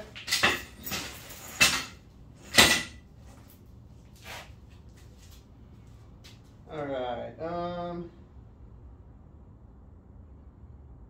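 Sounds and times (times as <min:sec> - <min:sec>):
hard objects clacking on work surface: 0:00.0 - 0:03.0.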